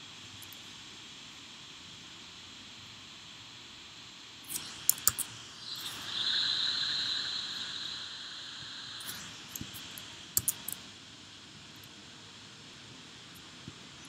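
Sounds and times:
soft hiss: 0.0s - 14.0s
laptop keyboard and trackpad clicks: 4.5s - 5.3s, 10.4s - 10.8s.

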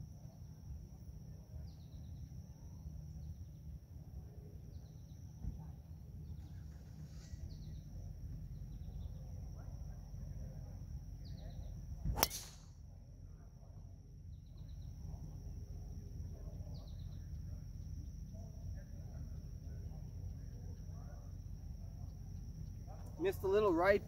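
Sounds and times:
golf club striking ball: 12.1s - 12.8s.

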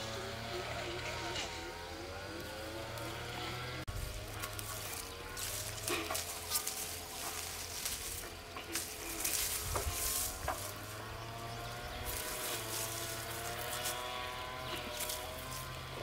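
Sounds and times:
leaves and twigs rustling: 0.0s - 16.0s
twigs snapping: 4.3s - 11.2s, 12.0s - 16.0s.

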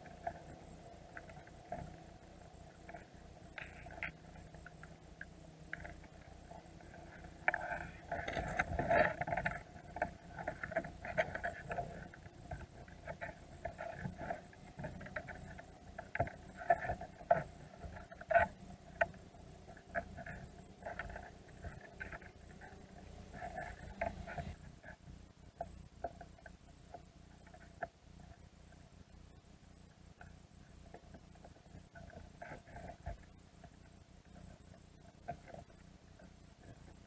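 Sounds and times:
crab shells clicking underwater: 0.0s - 24.6s.

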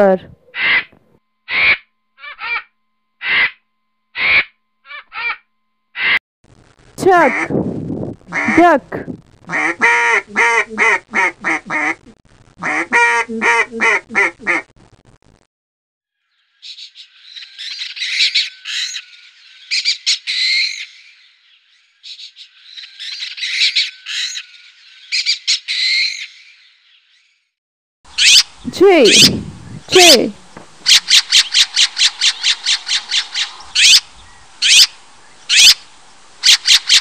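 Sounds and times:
duck quacking: 0.5s - 0.9s, 1.5s - 3.6s, 4.2s - 6.2s, 7.3s - 7.5s, 8.3s - 8.8s, 9.5s - 14.7s
kestrel high rapid calls: 1.5s - 3.6s, 4.2s - 6.2s, 28.1s - 35.8s, 36.4s - 37.0s.

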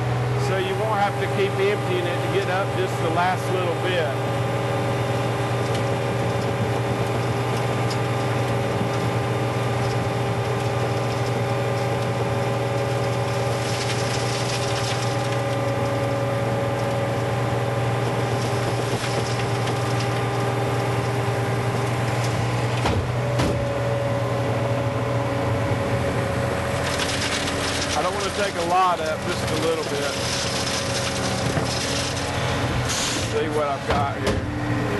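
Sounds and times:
loader engine running: 0.0s - 34.9s
broom sweeping gravel: 12.8s - 15.5s, 26.8s - 33.3s.

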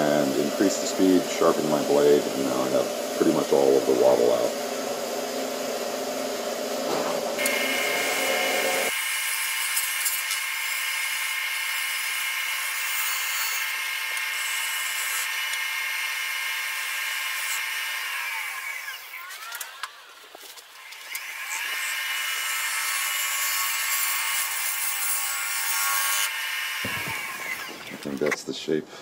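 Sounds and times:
wood lathe whine: 7.3s - 19.4s, 20.8s - 28.2s.

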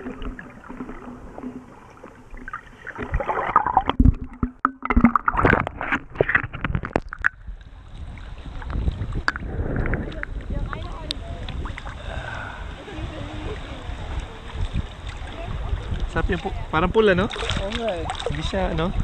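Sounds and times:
water lapping: 0.0s - 6.8s, 7.5s - 19.0s
splashes and bubbling clicks: 0.0s - 12.0s, 17.3s - 18.9s
muffled water sloshing: 0.0s - 19.0s
wind: 0.0s - 19.0s.

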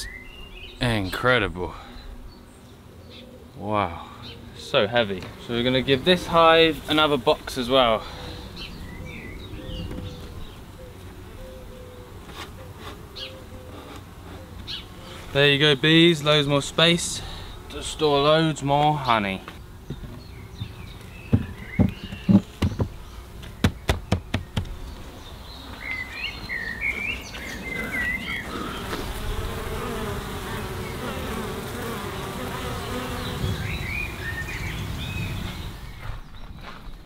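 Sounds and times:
honeybees buzzing: 0.0s - 36.3s
wooden lid knocks: 21.3s - 22.9s.

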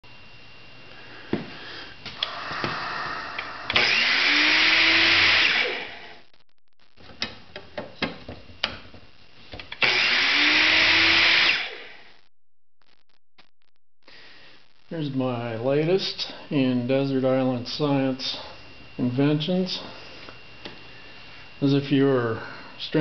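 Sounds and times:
grinding wheel motor humming: 2.2s - 6.2s, 9.7s - 11.9s.

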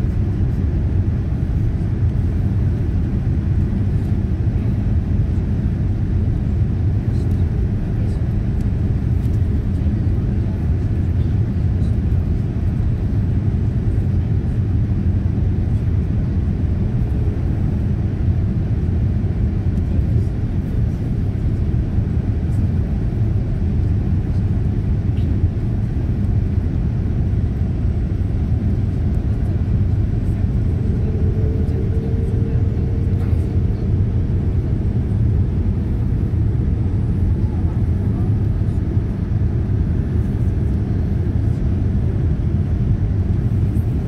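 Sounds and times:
airliner cabin rumble: 0.0s - 44.0s.

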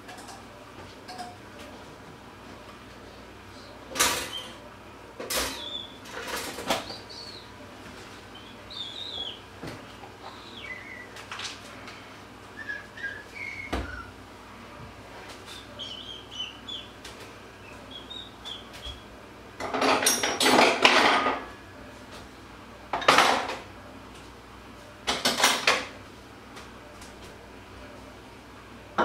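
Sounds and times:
cutlery and dishes clattering: 5.2s - 6.9s, 19.6s - 21.4s, 25.1s - 25.9s.

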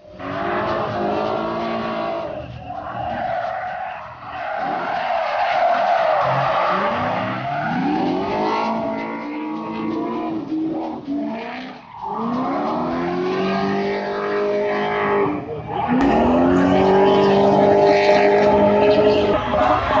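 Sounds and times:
car engines at high revs: 0.0s - 20.0s
tyres screeching: 0.0s - 20.0s.

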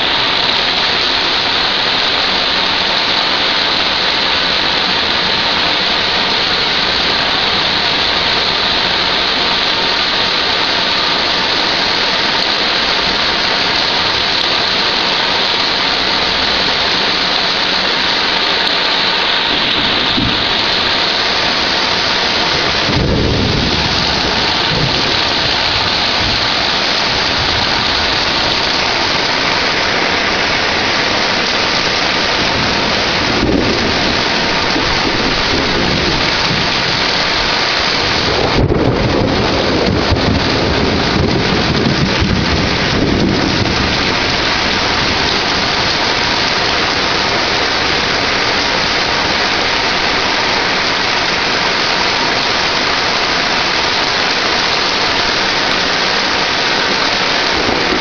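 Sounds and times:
heavy rain pouring: 0.0s - 58.0s
thunder rumbling: 0.0s - 58.0s
thunder crack: 19.4s - 46.4s, 57.5s - 58.0s.

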